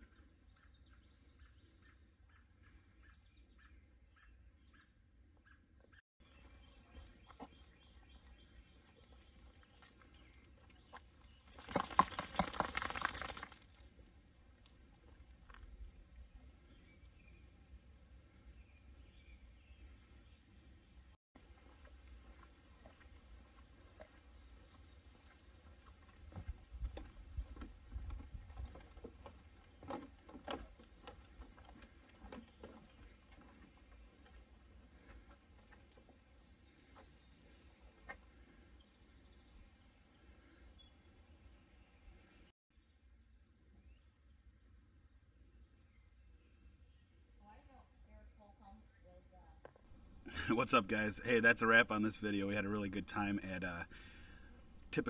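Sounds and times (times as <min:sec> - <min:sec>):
footsteps on wooden boardwalk: 0:21.8 - 0:35.8.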